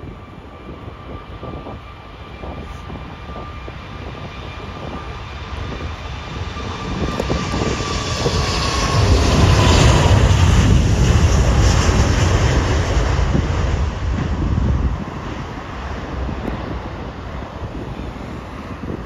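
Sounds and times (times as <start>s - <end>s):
deep jet engine roar: 0.0s - 19.0s.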